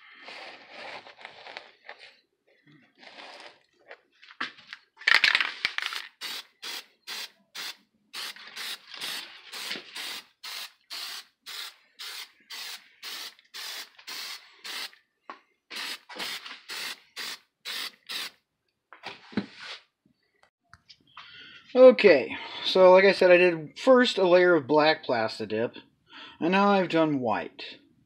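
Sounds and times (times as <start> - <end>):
aerosol can spraying: 6.0 - 15.0, 15.7 - 18.4.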